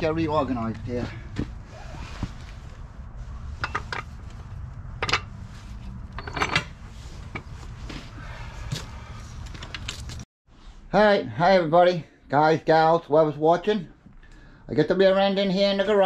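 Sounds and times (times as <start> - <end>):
metallic clinks and knocks: 6.1 - 7.5.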